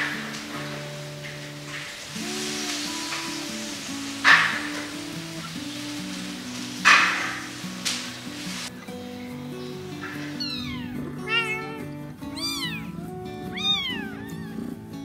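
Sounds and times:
music with sustained notes: 0.0s - 15.0s
cat meowing: 10.1s - 15.0s.

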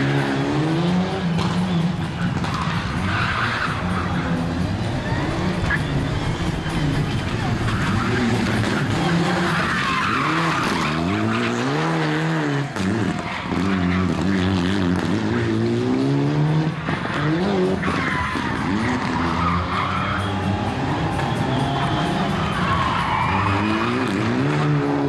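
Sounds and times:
rally car engine revving: 0.0s - 25.0s
tyres squealing: 2.1s - 14.7s, 17.5s - 24.5s.

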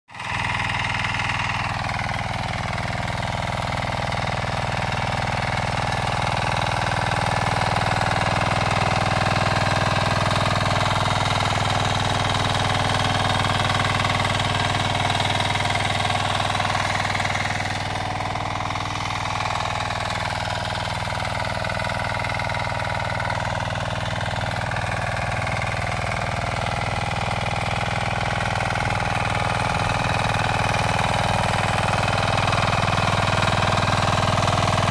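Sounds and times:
diesel weeder engine running: 0.1s - 34.9s
tines churning soil: 27.9s - 34.9s.

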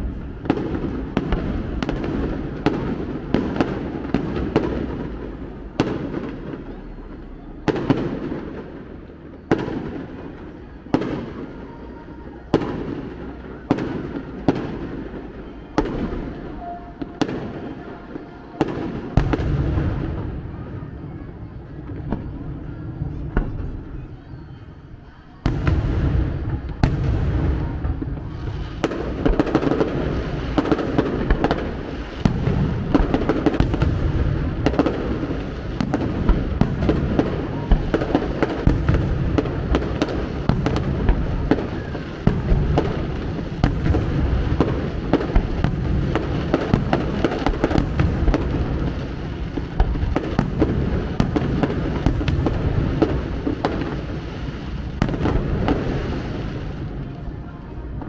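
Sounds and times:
firework bangs: 0.0s - 24.4s, 25.4s - 58.0s.

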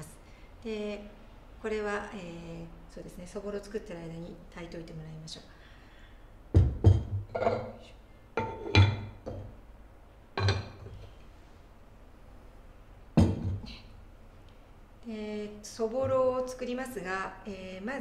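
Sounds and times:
ceramic pot knocks and clinks: 6.6s - 7.8s, 8.4s - 9.6s, 10.4s - 11.0s, 13.2s - 13.6s
pot set down thumps: 6.6s - 7.8s, 8.4s - 9.6s, 10.4s - 11.0s, 13.2s - 13.6s.

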